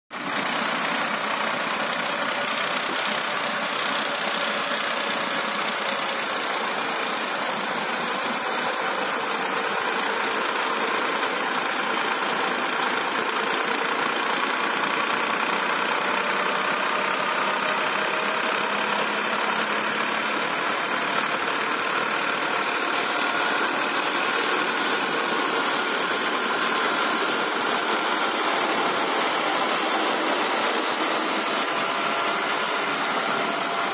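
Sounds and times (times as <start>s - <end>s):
reaper mechanism and tractor engine: 0.2s - 33.9s.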